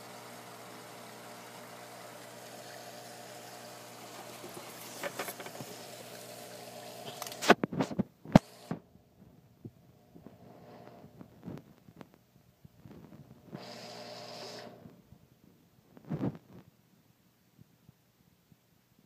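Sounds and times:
water trickling: 0.0s - 7.4s
aquarium equipment hum: 0.0s - 15.4s.

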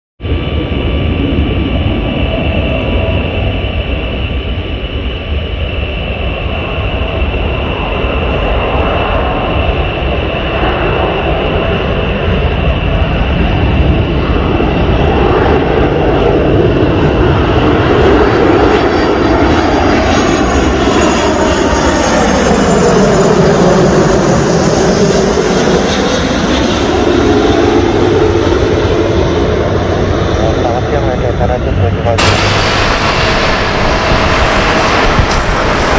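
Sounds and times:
jet plane flying overhead: 0.2s - 35.9s.

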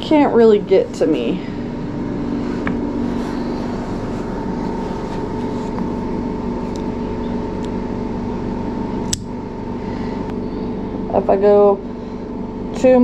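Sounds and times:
mechanical hum with tones: 0.0s - 13.0s
nail clippers clicking: 9.1s - 9.3s.

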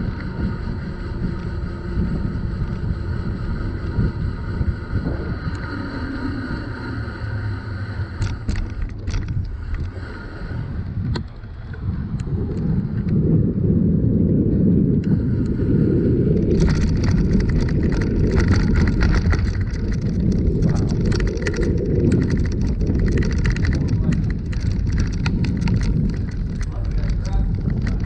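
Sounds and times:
bicycle rattling over wooden planks: 8.2s - 10.1s, 16.2s - 28.0s.

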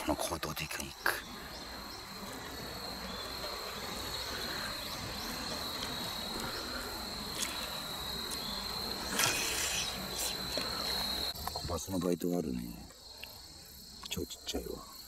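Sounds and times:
high-pitched insect song: 0.0s - 15.0s.

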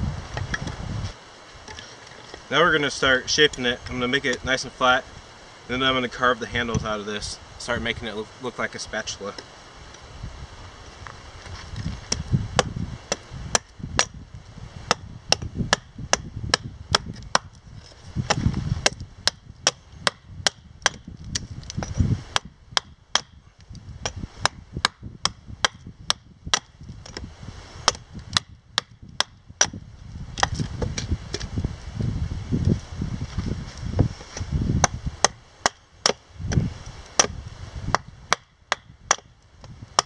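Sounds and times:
hatchet chopping into wood: 12.1s - 14.2s, 14.9s - 17.5s, 18.3s - 23.4s, 24.0s - 27.2s, 27.8s - 29.8s, 30.4s - 31.5s, 34.8s - 40.0s.

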